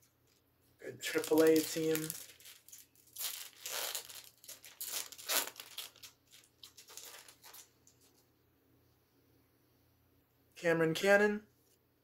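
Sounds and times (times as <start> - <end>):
foil wrapper tearing and crinkling: 1.0 - 7.7.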